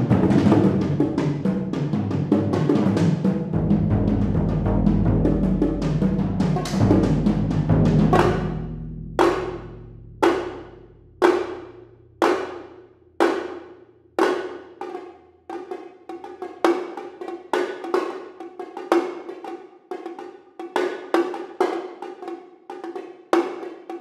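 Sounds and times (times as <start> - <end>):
drum strokes: 0.0 - 13.6.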